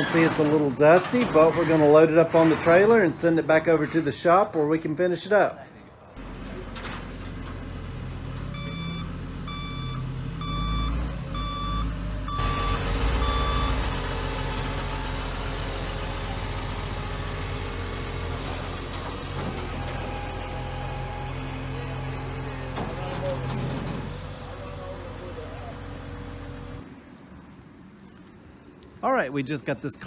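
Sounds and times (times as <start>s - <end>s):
truck engine running: 6.2s - 26.8s
truck reversing alarm beeping: 7.6s - 26.8s.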